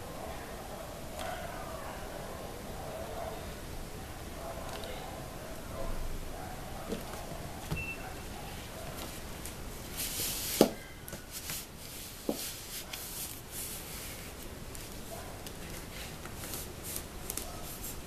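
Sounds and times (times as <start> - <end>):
hands rubbing foam sheet: 9.9 - 18.0.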